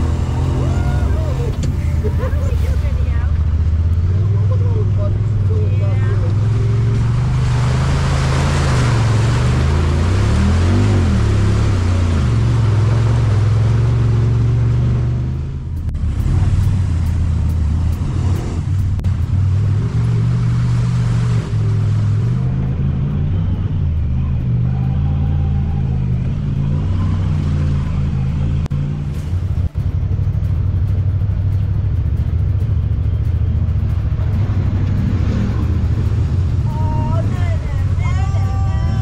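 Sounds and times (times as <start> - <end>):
utv engine revving under load: 0.0 - 15.4.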